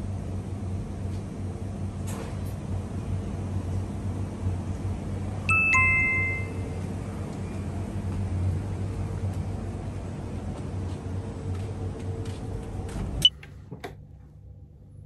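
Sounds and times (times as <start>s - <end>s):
two-note ding-dong chime: 5.5s - 6.6s.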